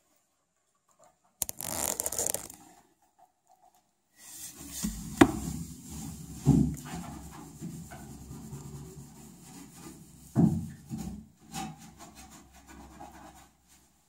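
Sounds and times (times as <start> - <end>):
rubbing and scraping: 1.4 - 2.6, 4.4 - 13.9.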